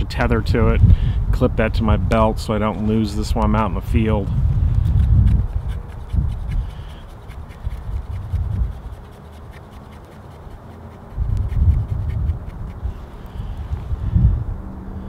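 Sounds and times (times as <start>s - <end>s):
low rumble: 0.5s - 6.5s, 11.2s - 15.0s
knife scraping a stick: 4.7s - 13.6s.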